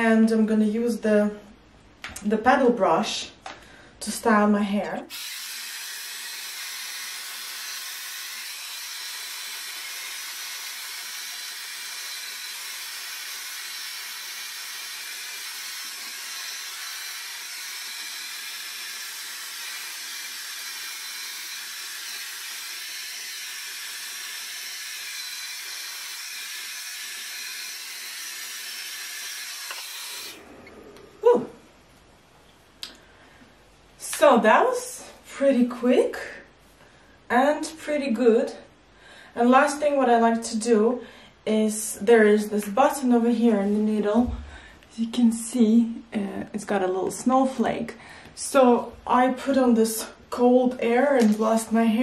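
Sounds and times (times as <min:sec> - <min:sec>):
hairdryer running: 0:05.1 - 0:31.0
brief rising sound: 0:30.3 - 0:31.8.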